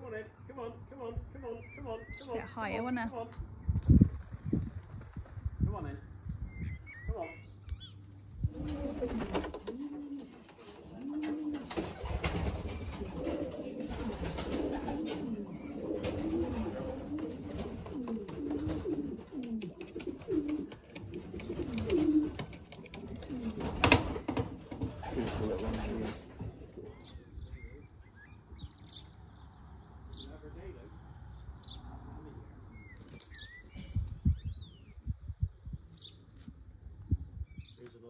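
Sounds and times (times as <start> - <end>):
wing flaps: 3.8 - 5.6, 8.5 - 26.8
pigeons cooing: 6.6 - 29.1.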